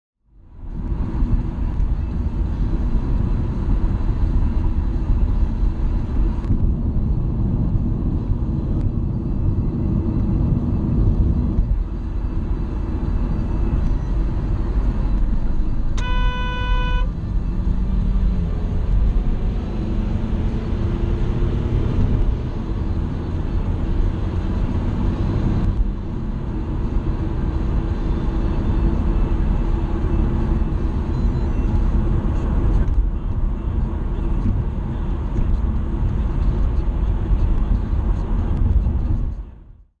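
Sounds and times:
car road and engine noise: 0:00.2 - 0:40.0
car horn honk: 0:16.0 - 0:17.1.

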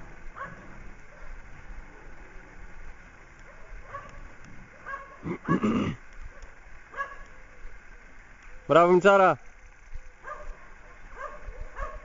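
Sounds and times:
dog barking: 0:00.3 - 0:01.4, 0:03.4 - 0:05.4, 0:06.3 - 0:07.5, 0:10.2 - 0:12.0.

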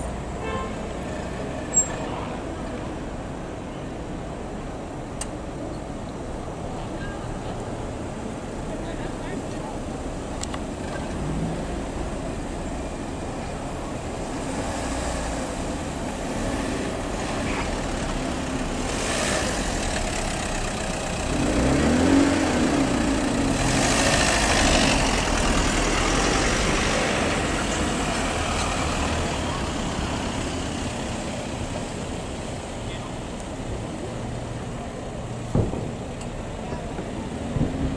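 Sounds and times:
cars driving past: 0:00.0 - 0:37.9
loud vehicle passing: 0:14.2 - 0:32.6
engine revving: 0:16.2 - 0:31.0.

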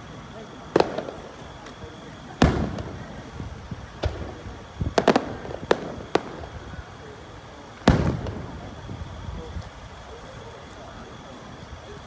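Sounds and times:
firework shells bursting: 0:00.7 - 0:07.0, 0:07.7 - 0:09.7.

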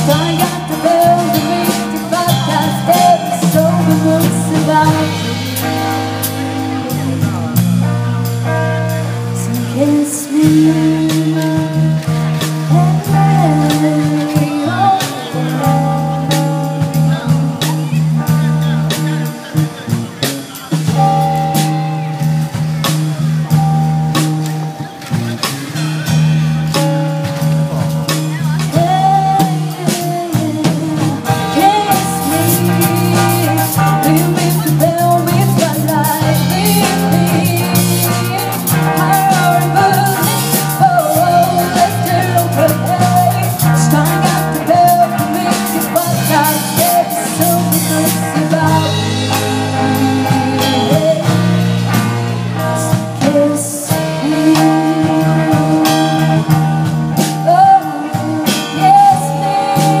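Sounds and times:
woman singing lead: 0:00.0 - 0:19.9, 0:26.7 - 1:00.0
drum kit: 0:00.0 - 1:00.0
electric bass: 0:00.0 - 1:00.0
electric guitar: 0:00.0 - 1:00.0.

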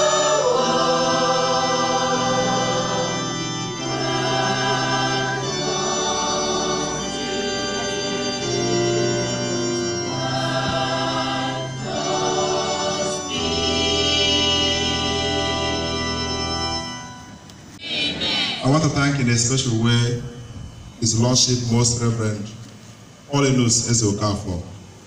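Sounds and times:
girls' choir singing chords: 0:00.0 - 0:16.9, 0:17.8 - 0:18.7.

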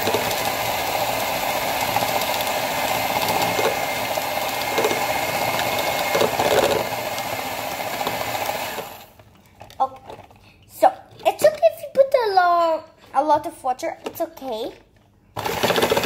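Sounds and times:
electric hand mixer running: 0:00.0 - 0:09.2, 0:15.4 - 0:16.0.

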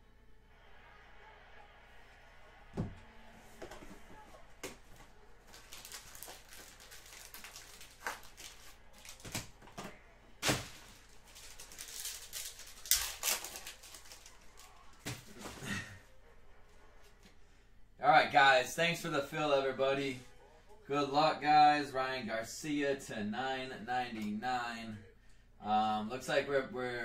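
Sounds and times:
card packs crinkling: 0:04.6 - 0:15.6.

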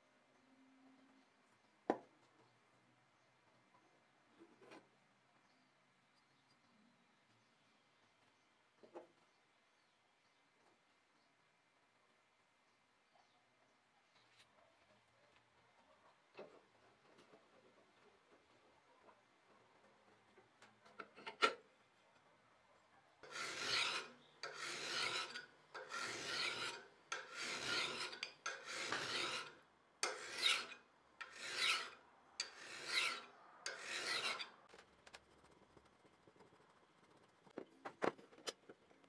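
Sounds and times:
file rasping on steel blade: 0:23.2 - 0:34.7.

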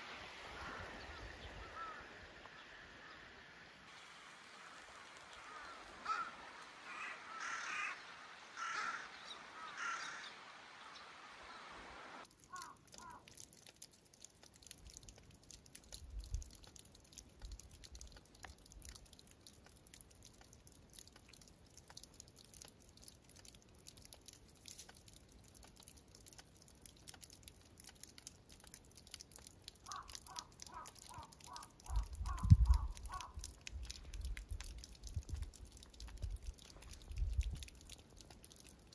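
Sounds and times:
water trickling and dripping: 0:00.0 - 0:38.9
crow cawing: 0:00.6 - 0:02.1, 0:05.4 - 0:10.4, 0:12.5 - 0:13.2, 0:29.8 - 0:33.5.

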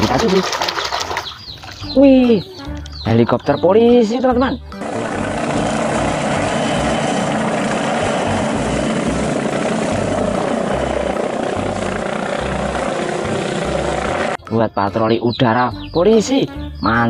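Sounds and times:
low throbbing: 0:04.6 - 0:14.4
helicopter flying low: 0:04.8 - 0:14.4.

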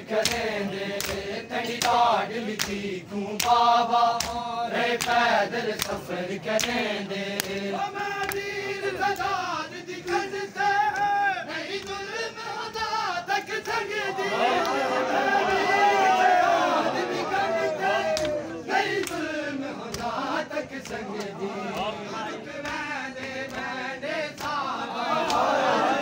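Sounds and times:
men chanting a lament: 0:00.0 - 0:26.0
hands slapping on chests: 0:00.2 - 0:02.8, 0:03.4 - 0:08.5, 0:14.4 - 0:15.6, 0:17.9 - 0:22.0, 0:22.6 - 0:25.6.

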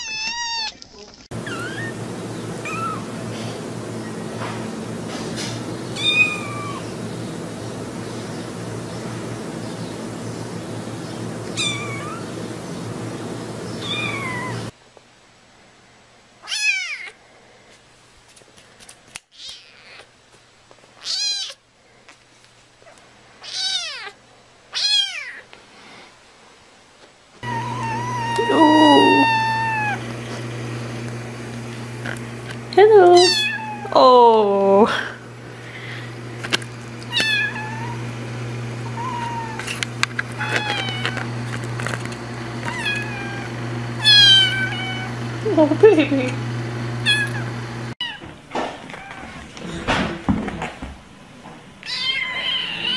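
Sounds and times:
kitten meowing: 0:00.0 - 0:00.7, 0:01.4 - 0:01.9, 0:02.6 - 0:03.0, 0:06.0 - 0:06.8, 0:11.6 - 0:12.2, 0:13.8 - 0:14.6, 0:21.0 - 0:21.6, 0:23.4 - 0:25.4, 0:27.4 - 0:30.0, 0:33.1 - 0:34.0, 0:37.1 - 0:38.0, 0:38.9 - 0:39.6, 0:40.4 - 0:41.1, 0:42.7 - 0:45.1, 0:47.0 - 0:47.4, 0:51.8 - 0:52.9.

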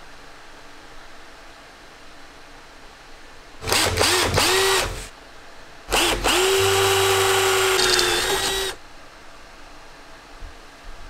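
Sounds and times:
handheld electric drill running: 0:03.6 - 0:05.1, 0:05.9 - 0:08.8.

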